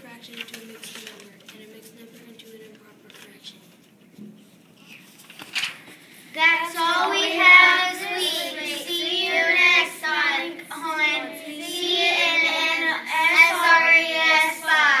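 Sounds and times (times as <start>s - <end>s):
girls singing together: 6.3s - 15.0s.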